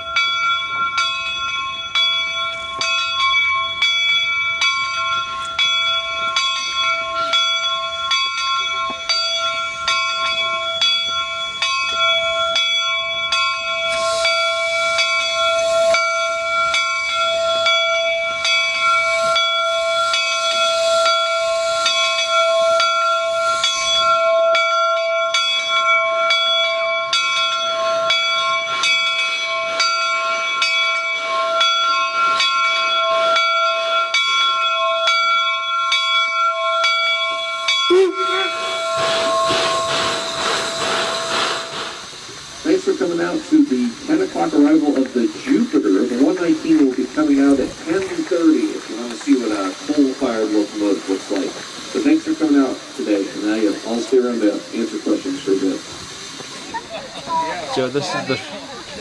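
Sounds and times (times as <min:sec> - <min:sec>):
steam locomotive bell ringing: 0:00.0 - 0:59.0
steam hissing: 0:12.2 - 0:24.8, 0:37.4 - 0:59.0.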